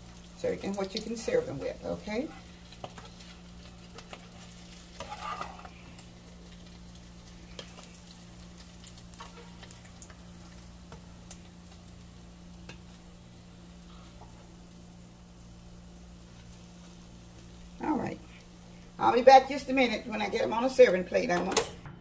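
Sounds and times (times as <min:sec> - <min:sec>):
oil sizzling in a skillet: 0:00.0 - 0:21.2
spatula scraping: 0:02.3 - 0:06.0.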